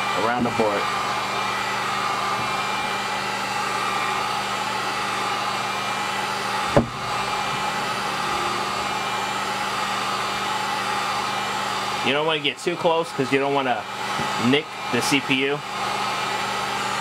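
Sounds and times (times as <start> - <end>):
heat gun fan humming: 0.0 - 17.0
short thump: 6.7 - 7.1.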